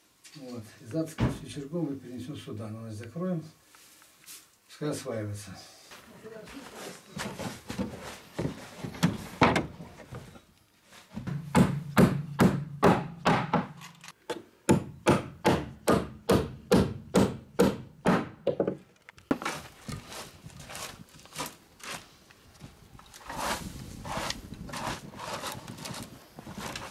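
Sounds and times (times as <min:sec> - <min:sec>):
hammer striking wooden boards: 0:11.2 - 0:13.8, 0:14.7 - 0:18.8.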